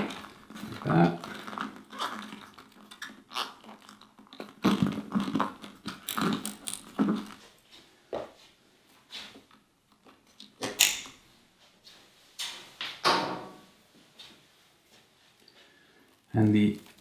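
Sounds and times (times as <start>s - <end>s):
cable rustling and scraping: 0.0s - 7.7s, 15.3s - 17.0s.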